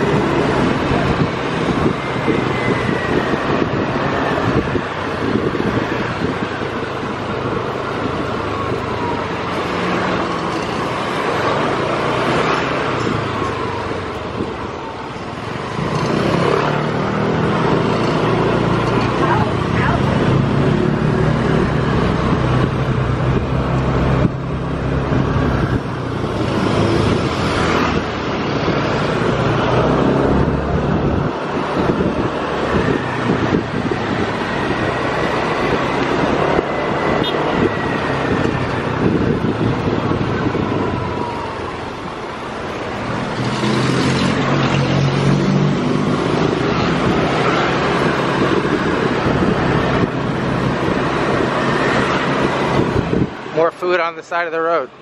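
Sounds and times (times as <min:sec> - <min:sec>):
wind noise on microphone: 0:00.0 - 0:53.6.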